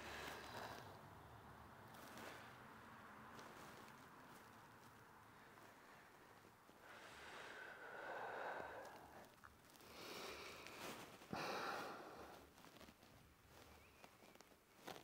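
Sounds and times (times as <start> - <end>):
man breathing: 5.3 - 12.5.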